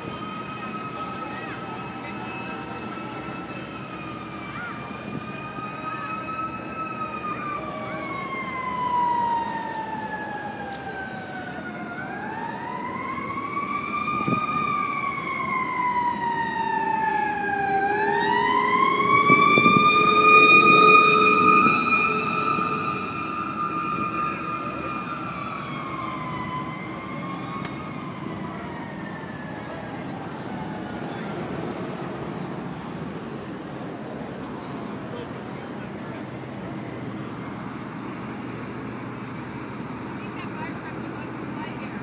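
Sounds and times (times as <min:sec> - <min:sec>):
siren wailing: 0:00.0 - 0:33.2.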